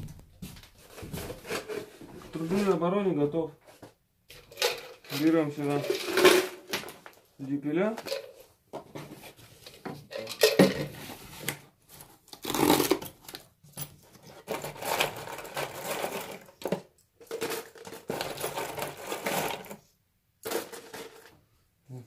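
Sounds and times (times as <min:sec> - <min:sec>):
plastic dowels rattling: 0:04.3 - 0:07.2, 0:09.7 - 0:11.0, 0:14.1 - 0:21.4.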